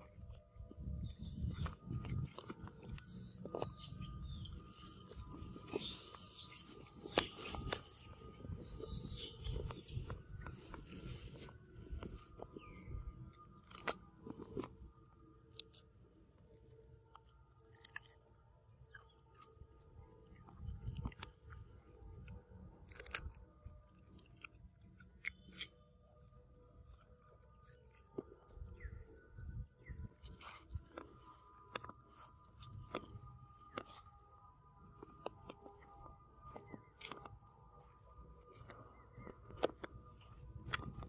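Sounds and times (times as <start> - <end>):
monkey crunching cucumber: 13.6 - 14.7, 15.5 - 15.9, 17.6 - 18.2, 22.8 - 23.4, 24.0 - 25.8.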